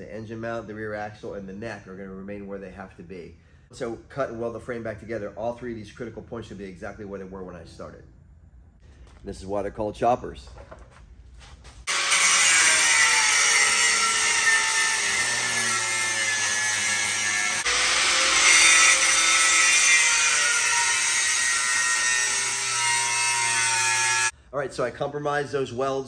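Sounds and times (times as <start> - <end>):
grinder cutting steel: 11.8 - 24.3.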